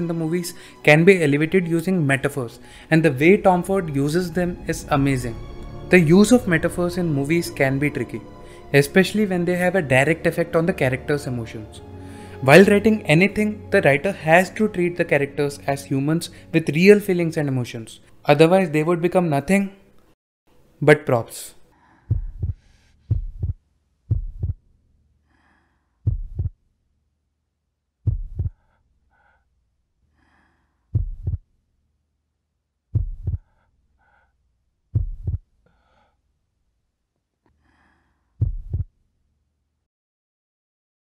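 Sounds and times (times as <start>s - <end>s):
faint breath-like noise: 2.5s - 3.0s, 8.2s - 8.8s, 11.8s - 12.5s, 21.6s - 23.5s, 25.2s - 26.1s, 28.4s - 31.4s, 33.3s - 34.4s, 35.6s - 36.3s, 37.5s - 38.5s
heartbeat thumps: 22.1s - 24.6s, 26.0s - 26.6s, 28.0s - 28.6s, 30.9s - 31.4s, 32.9s - 33.5s, 34.9s - 35.5s, 38.4s - 38.9s.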